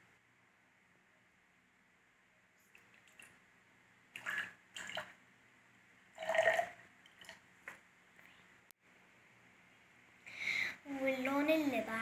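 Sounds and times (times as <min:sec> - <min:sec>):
water pouring into glass: 0:06.2 - 0:07.4.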